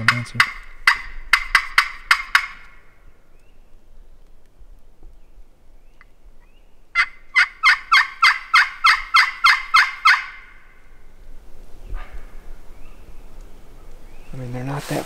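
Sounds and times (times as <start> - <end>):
turkey call hen yelps: 7.0 - 10.6.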